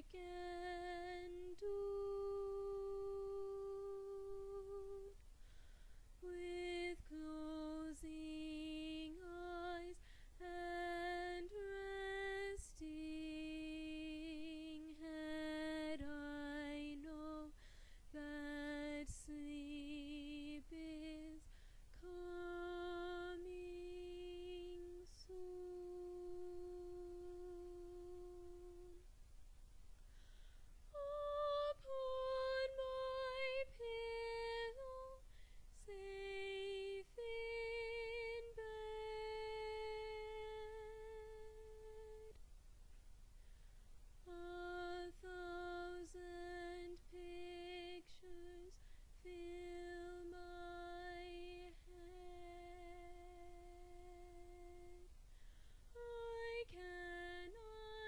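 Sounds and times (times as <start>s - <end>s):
woman singing soprano: 0.0s - 5.2s, 6.2s - 29.0s, 30.9s - 42.4s, 44.3s - 55.1s, 55.9s - 58.0s
singer breathing: 5.3s - 6.2s, 10.0s - 10.4s, 17.6s - 18.1s, 30.0s - 30.8s, 35.2s - 35.7s, 55.2s - 55.9s.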